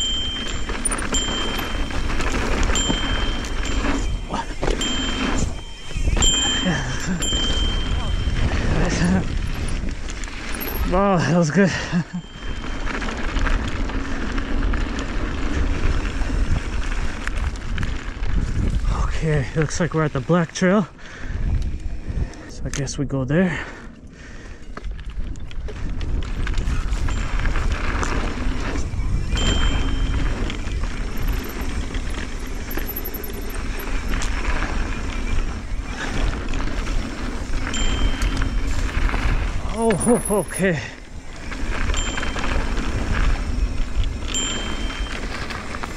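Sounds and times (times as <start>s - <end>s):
bike knocks and rattles: 0.0s - 10.9s
wind on microphone: 0.0s - 11.0s, 12.5s - 19.6s, 21.2s - 22.6s, 24.8s - 40.4s
sharp rattles: 0.0s - 11.2s, 26.3s - 45.9s
tyres rolling on loose dirt: 0.0s - 20.9s, 24.5s - 45.9s.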